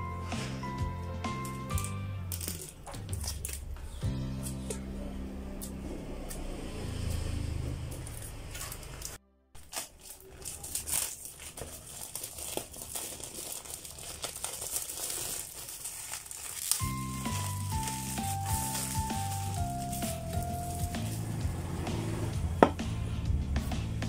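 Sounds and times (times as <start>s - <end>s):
background music: 0.0s - 7.2s, 16.6s - 24.0s
scissors cutting plastic: 1.4s - 4.8s, 7.9s - 21.3s
plastic wrap crinkling: 1.7s - 4.0s, 8.2s - 21.4s.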